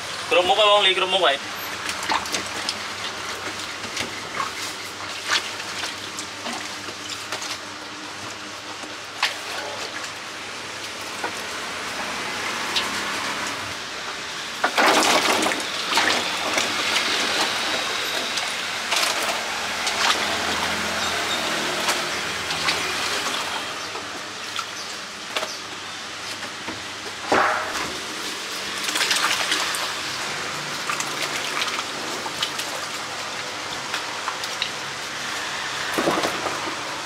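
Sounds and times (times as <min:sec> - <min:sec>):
water splashing in a steel basin: 0:01.7 - 0:10.2, 0:14.7 - 0:25.1, 0:27.5 - 0:37.0.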